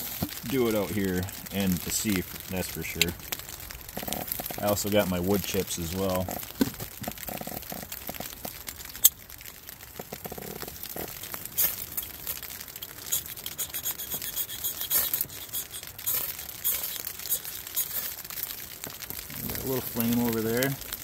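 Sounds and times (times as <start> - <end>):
bark and wood chips crinkling: 0.0 - 21.0
striker scraping ferrocerium rod: 13.1 - 18.2.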